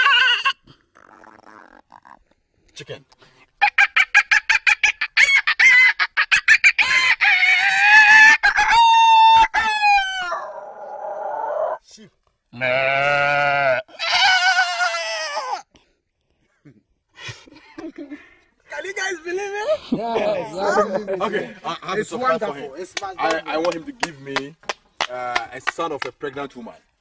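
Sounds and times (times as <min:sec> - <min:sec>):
man imitating chicken clucks: 0:00.0 - 0:00.6
man imitating rooster crowing: 0:00.0 - 0:00.6, 0:04.6 - 0:11.8.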